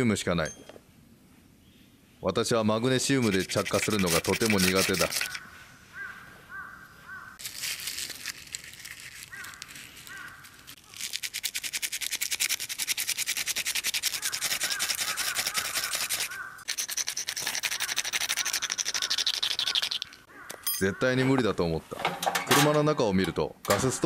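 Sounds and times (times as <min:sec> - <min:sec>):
crow cawing: 0:05.1 - 0:07.4, 0:09.3 - 0:10.6, 0:14.1 - 0:16.7, 0:17.8 - 0:21.2.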